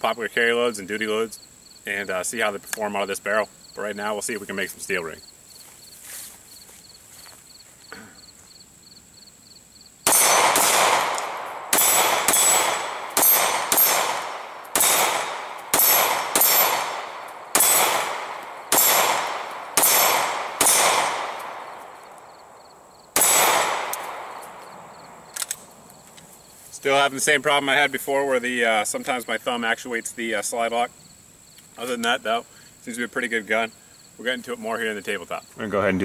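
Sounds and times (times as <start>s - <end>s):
insects chirping: 0.0s - 36.0s
pistol shots: 10.0s - 22.2s, 23.1s - 25.6s
bullets clanging on steel targets: 10.1s - 21.5s, 23.2s - 24.2s.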